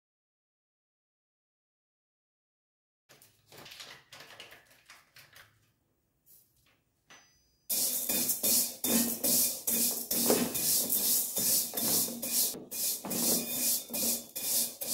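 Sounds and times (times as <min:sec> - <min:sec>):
spatula scraping metal pan: 0:07.7 - 0:14.9
handling noises: 0:07.8 - 0:14.2.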